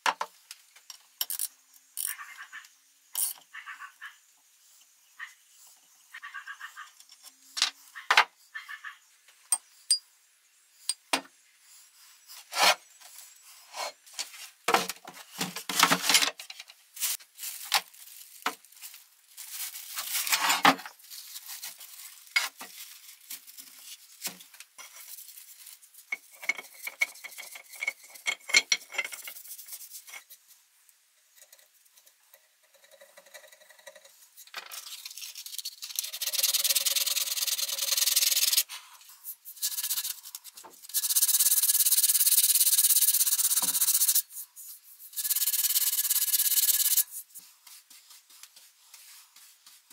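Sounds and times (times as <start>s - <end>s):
metal tools clinking and scraping: 26.1s - 29.4s.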